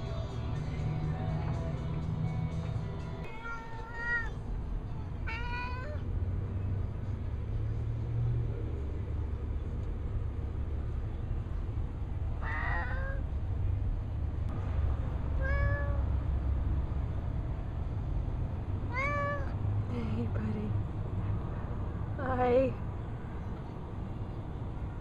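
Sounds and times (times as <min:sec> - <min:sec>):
cat meowing: 0:03.3 - 0:04.4, 0:05.3 - 0:06.0, 0:12.4 - 0:13.2, 0:15.4 - 0:16.1, 0:18.9 - 0:19.6.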